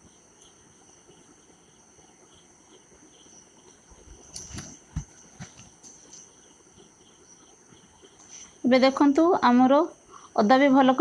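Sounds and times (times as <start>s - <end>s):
soft regular pips: 0.0s - 8.7s.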